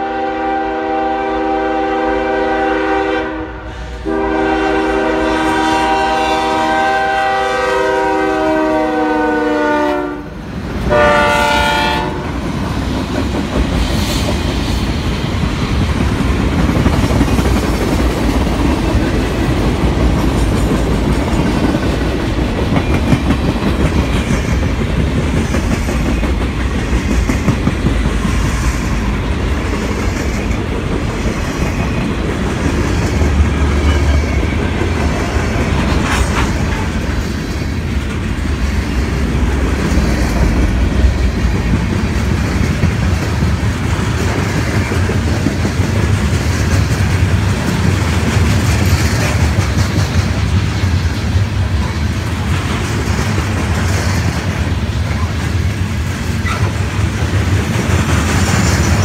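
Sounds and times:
freight train rumbling past: 0.0 - 59.0
steel wheels clacking on rail joints: 12.4 - 59.0.

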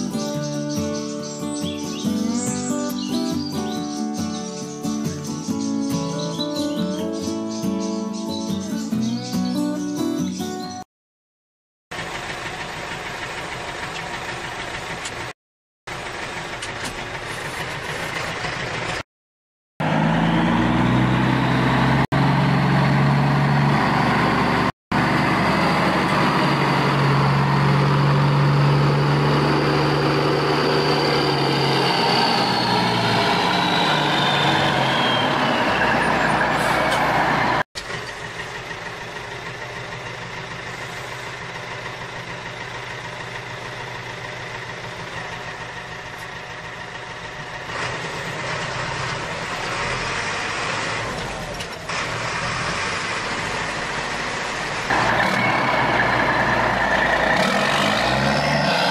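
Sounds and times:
vehicle engine running: 11.9 - 19.0, 19.8 - 58.9
high engine whine: 19.8 - 58.9.

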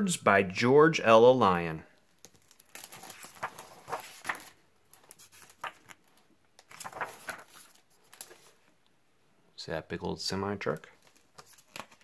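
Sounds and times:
book pages turning: 2.2 - 8.7, 11.0 - 12.0.

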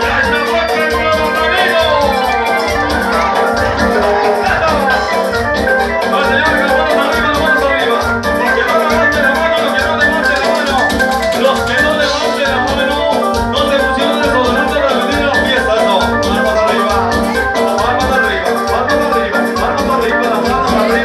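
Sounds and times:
latin dance music: 0.0 - 21.0.

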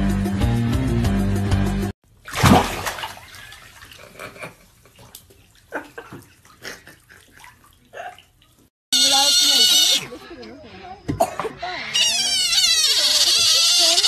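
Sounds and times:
water splashing: 2.1 - 8.7.

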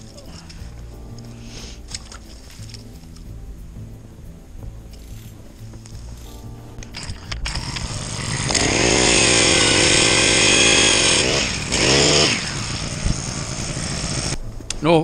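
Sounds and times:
ice auger engine revving: 7.0 - 14.4.

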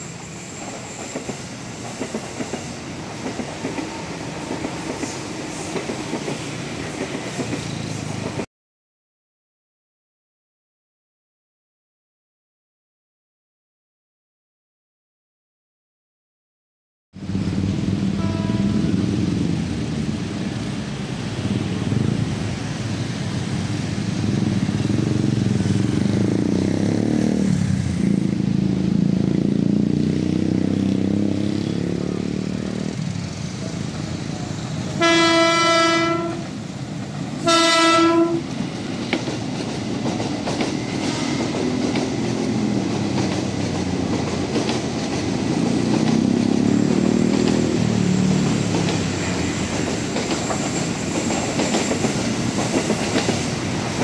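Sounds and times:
train horn blasts: 18.1 - 19.1, 35.0 - 36.6, 37.4 - 38.5.

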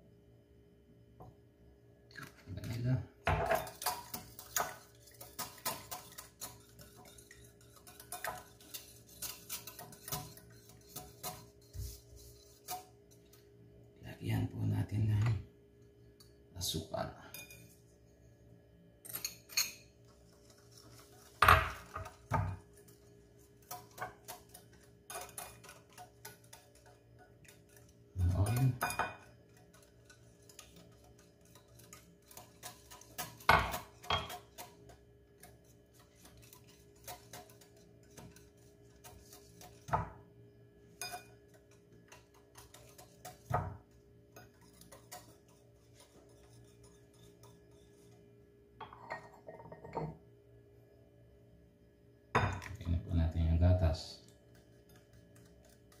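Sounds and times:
whisk clinking glass bowl: 3.3 - 13.5, 19.0 - 40.2, 40.8 - 48.2.

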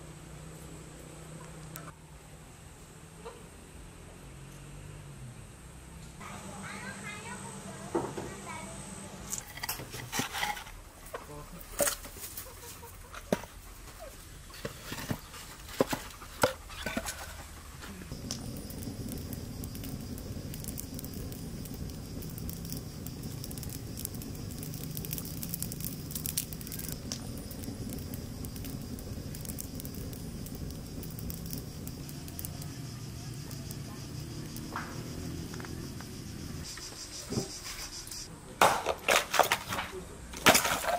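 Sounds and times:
wood fire burning: 5.8 - 36.9, 37.5 - 40.9
chickens clucking: 12.2 - 14.1
logs knocking together: 38.6 - 40.9.

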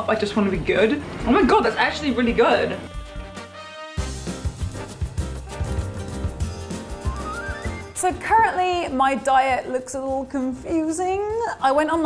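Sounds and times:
upbeat music with beat and bass: 2.6 - 8.6.

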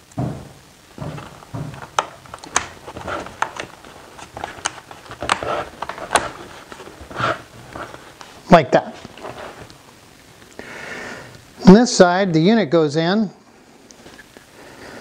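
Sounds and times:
soft handling and rubbing: 1.0 - 10.0
plastic cover snapping clicks: 1.2 - 6.5.

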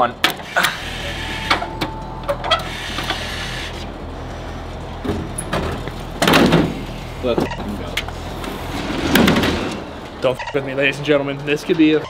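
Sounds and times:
machine humming: 0.0 - 11.6
dispensing mechanism whirring: 0.3 - 10.3
button beep: 7.4 - 7.7.

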